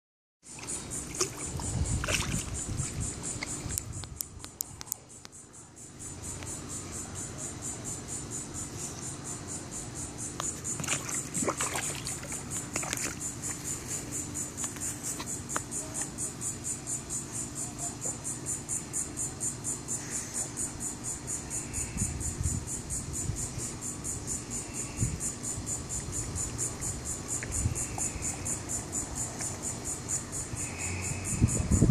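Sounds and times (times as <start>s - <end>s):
pulsing insect chorus: 0.4s - 31.9s
dog lapping and splashing water: 10.8s - 13.2s.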